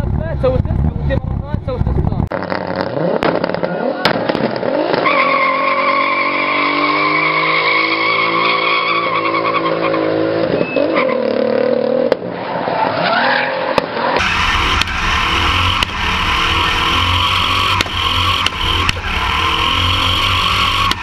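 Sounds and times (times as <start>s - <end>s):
car engine at high revs: 0.0s - 12.3s, 13.7s - 21.0s
tyres squealing: 14.2s - 21.0s.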